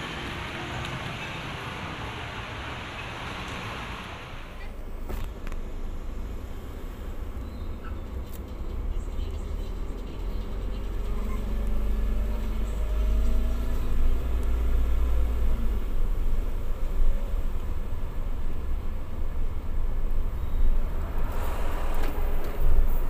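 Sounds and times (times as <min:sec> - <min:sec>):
vehicle engine accelerating: 0:05.4 - 0:17.6.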